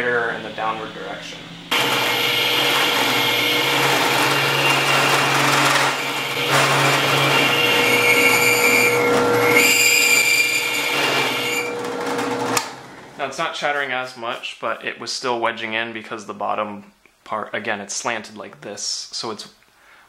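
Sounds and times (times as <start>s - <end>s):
drill press running: 1.6s - 13.2s.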